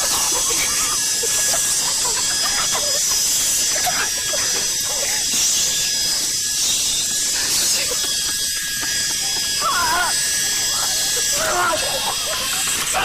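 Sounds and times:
toy helicopter whine: 0.0s - 13.0s.

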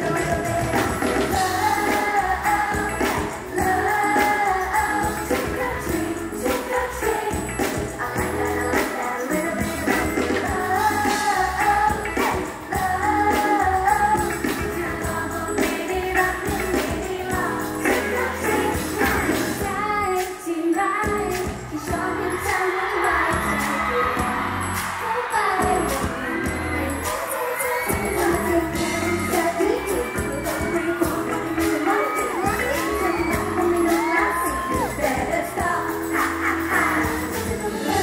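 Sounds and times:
pop song with female group vocals: 0.0s - 38.0s.

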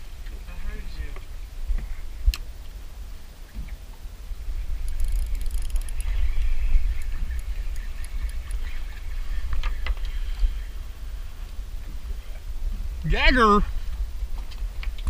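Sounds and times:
fishing reel clicking and whirring: 4.8s - 8.9s.

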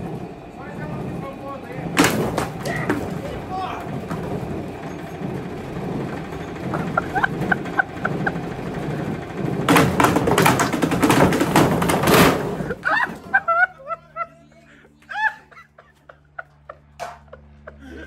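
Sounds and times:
machine banging and clattering: 0.0s - 13.8s
washing machine drum spinning: 0.0s - 13.9s.

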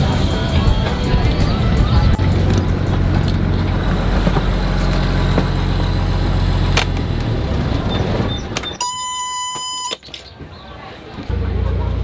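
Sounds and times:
diesel engine idling: 0.0s - 8.8s, 11.3s - 12.0s
alarm buzzer beeping: 8.3s - 10.0s.

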